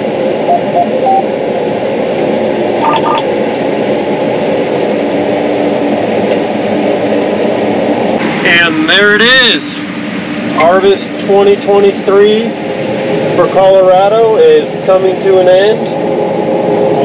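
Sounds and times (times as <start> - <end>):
combine harvester running: 0.0 - 17.0
short electronic beeps: 0.5 - 1.3, 2.8 - 3.2.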